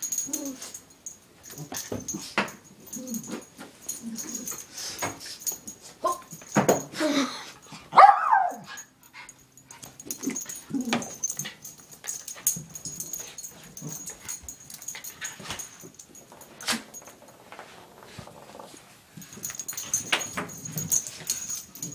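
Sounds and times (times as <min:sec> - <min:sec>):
dog barking and whining: 0:07.9 - 0:09.0.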